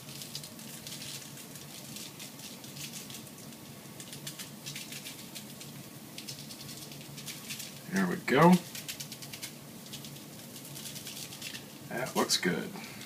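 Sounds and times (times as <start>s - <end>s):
seasoning granules pattering: 0.0s - 12.6s.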